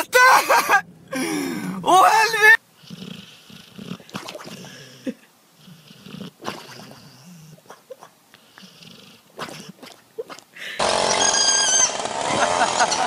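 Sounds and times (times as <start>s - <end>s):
dog snoring: 2.8s - 10.0s.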